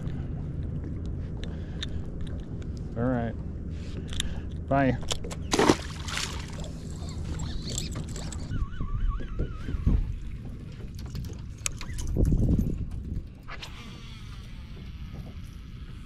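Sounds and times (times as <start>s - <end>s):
boat motor running at low revs: 0.0s - 16.0s
wavering whistle-like tone: 7.3s - 10.2s.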